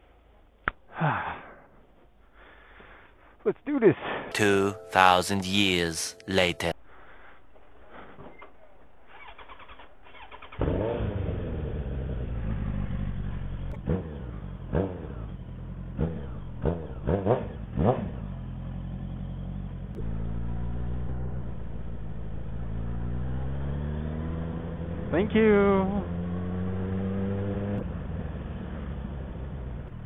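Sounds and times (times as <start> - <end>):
motorcycle engine on open exhaust: 10.6 - 30.0.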